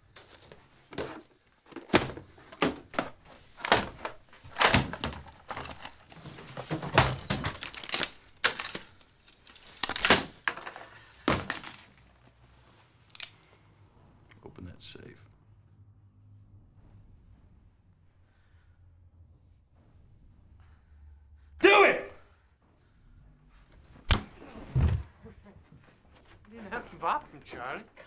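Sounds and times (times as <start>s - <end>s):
parcels thudding: 0.0s - 12.4s.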